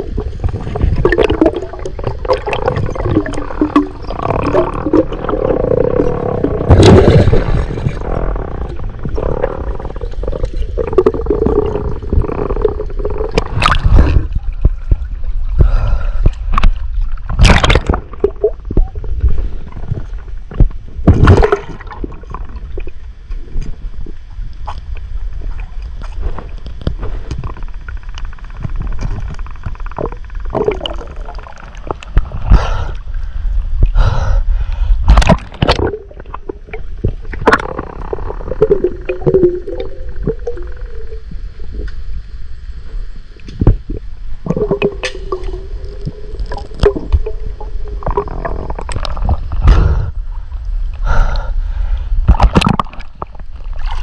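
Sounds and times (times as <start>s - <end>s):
bubbly rushes: 0.0s - 15.0s, 17.3s - 20.1s, 21.0s - 23.0s, 30.0s - 32.3s, 35.1s - 41.8s, 43.7s - 50.1s
underwater gurgling bubbles: 0.0s - 34.0s, 35.0s - 54.0s
low rumble: 0.0s - 54.0s
steady hum: 0.0s - 54.0s.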